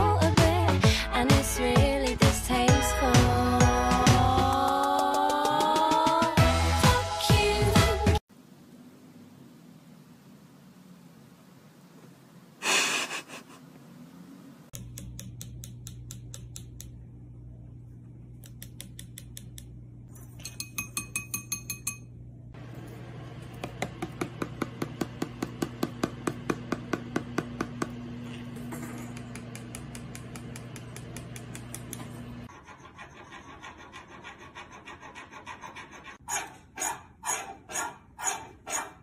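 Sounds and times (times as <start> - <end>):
steady low hum: 8.3 - 32.6.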